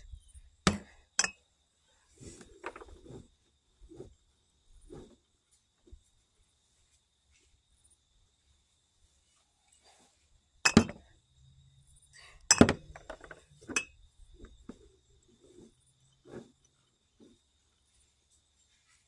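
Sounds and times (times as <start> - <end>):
glass jars clinking: 1.2 - 1.4, 10.7 - 11.0, 12.5 - 14.0.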